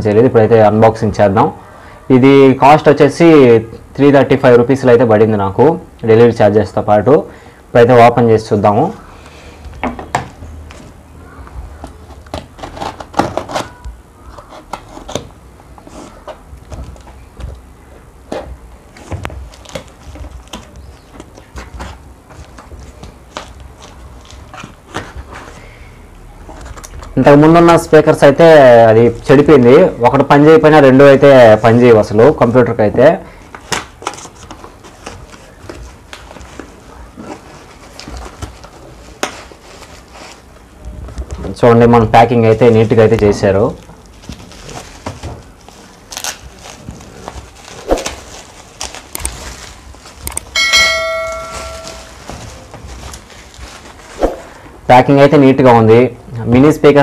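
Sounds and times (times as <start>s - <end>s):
cardboard and plastic wrap rustling: 9.6s - 30.1s, 31.1s - 54.7s
knife slitting packing tape: 12.3s - 13.8s.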